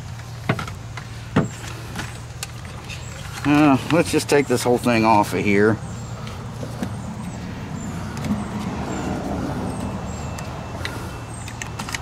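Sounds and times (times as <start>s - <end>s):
motor parts clicking and tapping: 10.3s - 12.0s.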